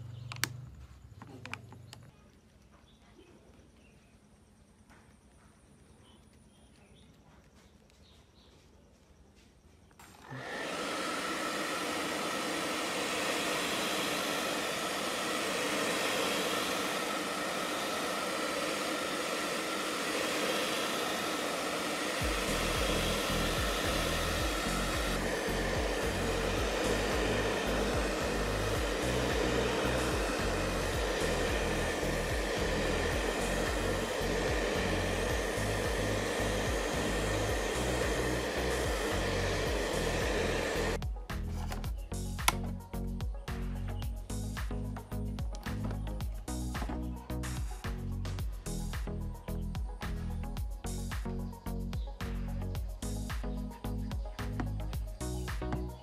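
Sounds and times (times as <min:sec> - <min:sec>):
hair dryer blowing: 0:10.0 - 0:42.6.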